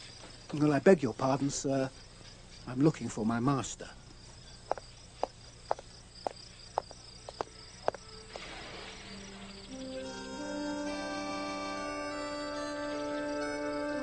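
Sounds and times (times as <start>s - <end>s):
crickets chirping: 0.0s - 14.0s
footsteps on cobblestones: 4.6s - 8.1s
soft music with held notes: 7.5s - 14.0s.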